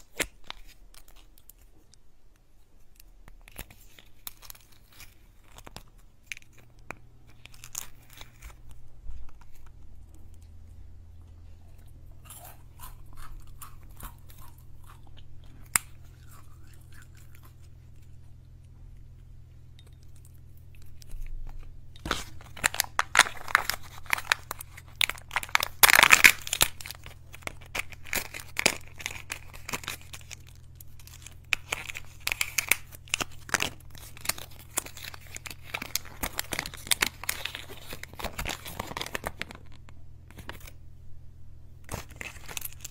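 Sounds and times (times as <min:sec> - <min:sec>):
foil crinkling and tearing: 0:07.3 - 0:09.7, 0:21.0 - 0:40.8, 0:41.9 - 0:42.9.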